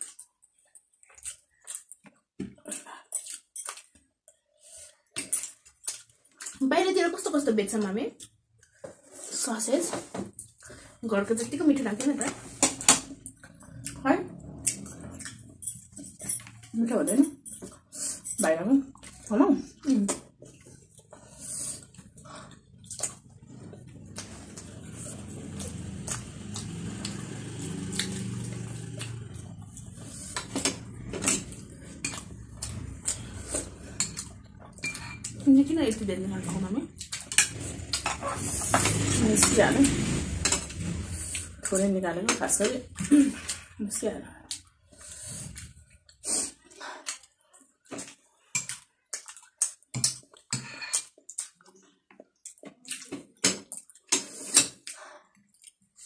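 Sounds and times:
wet chewing and smacking: 0.0 - 6.6, 18.8 - 35.5, 37.0 - 39.1, 44.4 - 56.0
cutlery clinking on plates: 34.0 - 35.4.

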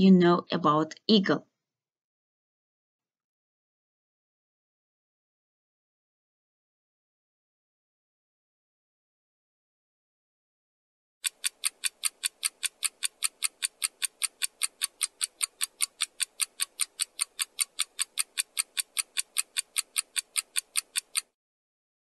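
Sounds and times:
clock ticking: 11.2 - 21.3.

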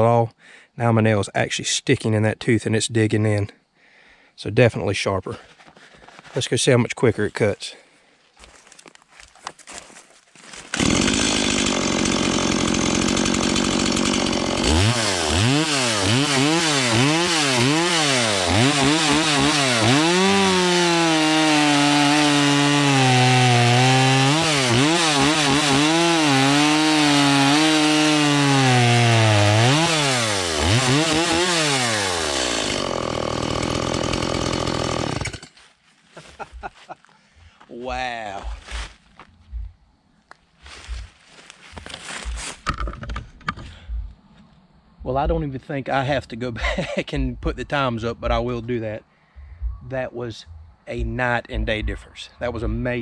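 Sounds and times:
chainsaw revving and cutting: 10.7 - 35.5.

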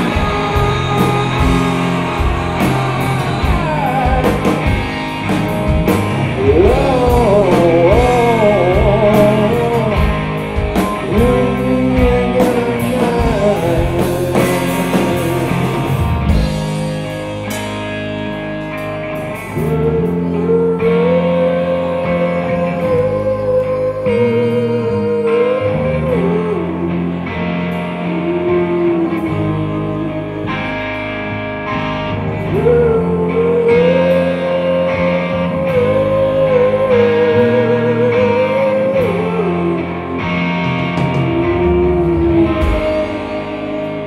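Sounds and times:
electric guitars with wavering notes: 0.0 - 44.0
rock band playing live: 0.0 - 44.0.

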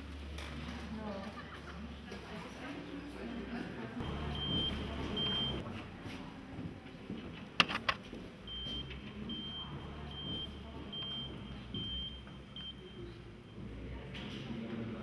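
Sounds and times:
low steady hum: 3.9 - 5.7
short high electronic beeps: 4.0 - 5.6.

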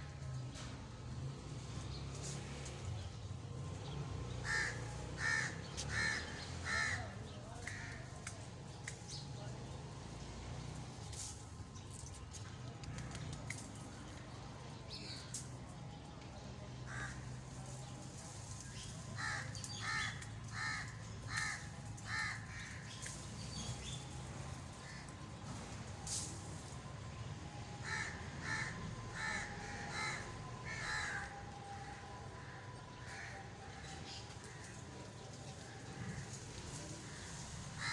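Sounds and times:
crow cawing: 4.4 - 8.0, 16.9 - 17.2, 19.2 - 22.8, 27.8 - 31.3.

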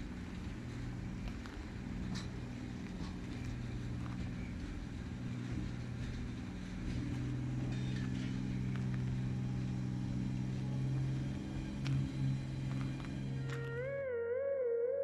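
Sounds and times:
electric locomotive humming: 0.0 - 15.0.

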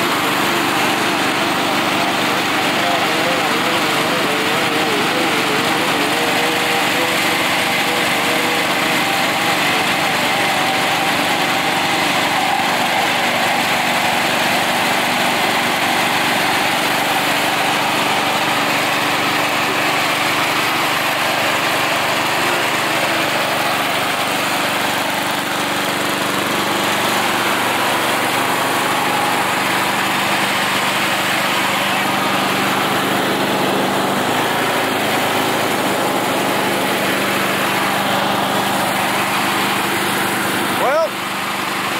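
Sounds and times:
mower engine running: 0.0 - 41.9.

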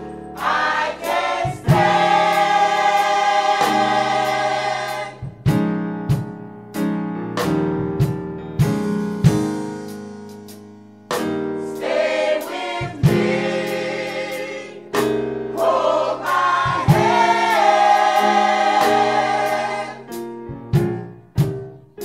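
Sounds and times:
piano chords: 0.0 - 22.0
vocal group singing in harmony: 0.3 - 5.4, 11.8 - 20.2.

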